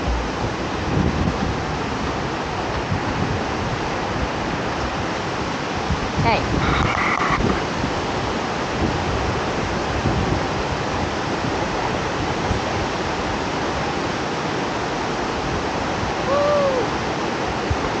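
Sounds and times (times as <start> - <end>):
short rising and falling tone: 0.0 - 0.8
rushing river rapids and waterfall: 0.0 - 18.0.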